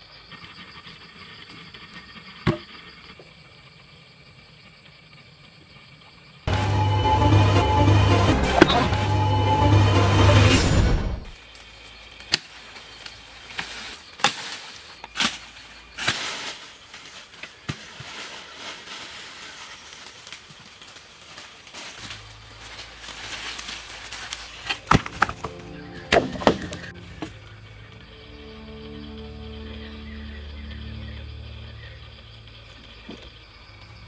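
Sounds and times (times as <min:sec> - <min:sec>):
rustle of leaves and undergrowth: 0:11.4 - 0:34.0.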